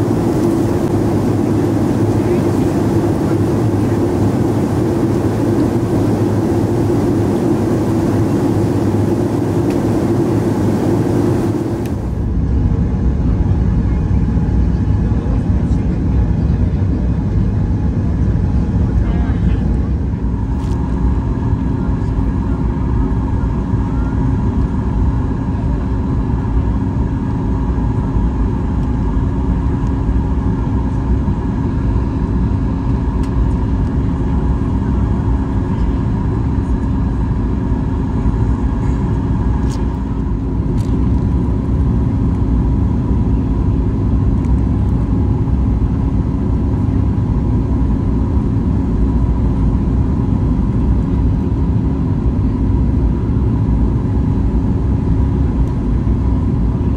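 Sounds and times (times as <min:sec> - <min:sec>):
engine tone hum: 0:00.0 - 0:12.6
airplane cabin engine rumble: 0:00.0 - 0:56.9.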